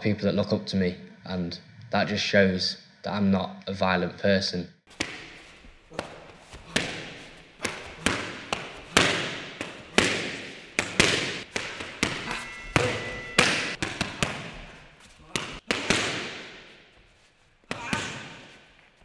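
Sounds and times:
gloved strikes on hand pads: 4.9s - 5.4s, 6.0s - 14.6s, 15.3s - 16.6s.

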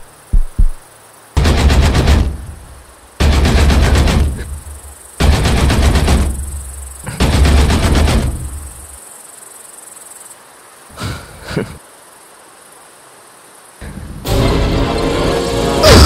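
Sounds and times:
loud rapid rattling burst: 1.4s - 8.9s
faint hiss: 8.4s - 14.3s.

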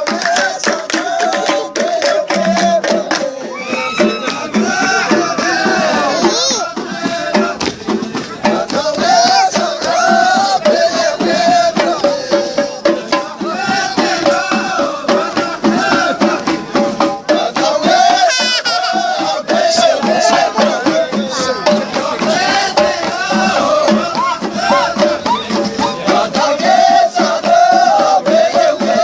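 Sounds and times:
rattling shaker percussion: 0.0s - 29.0s.

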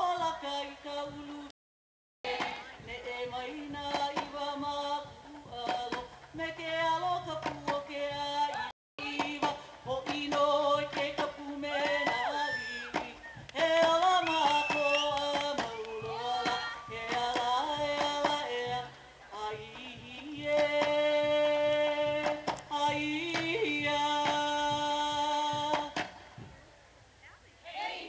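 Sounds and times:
struck percussion beats: 9.0s - 26.7s.

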